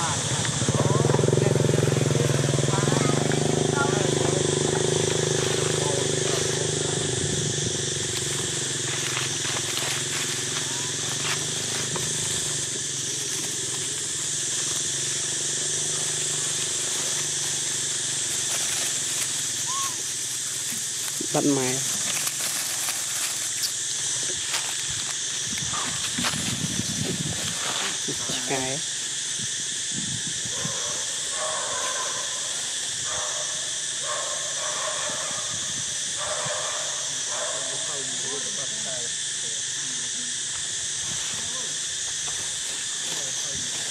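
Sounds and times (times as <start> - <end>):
high-pitched hiss: 0.0 - 43.9
baby monkey whimpering cries: 19.6 - 20.1.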